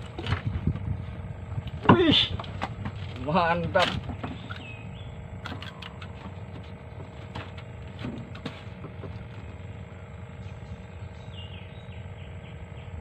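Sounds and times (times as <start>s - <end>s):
faint hum: 0.0s - 13.0s
steady low rumble: 0.0s - 13.0s
clicks and knocks of fish handling: 1.7s - 4.7s.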